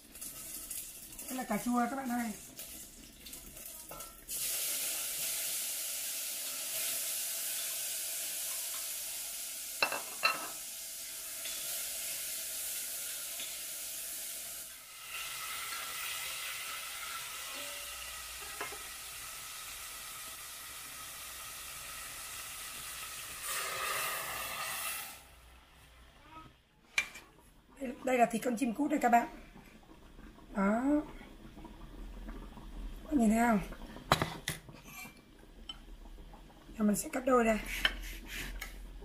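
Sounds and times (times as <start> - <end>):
food sizzling in hot oil: 0.0 - 25.5, 29.9 - 39.0
water pouring into pot: 0.0 - 25.5, 26.9 - 39.0.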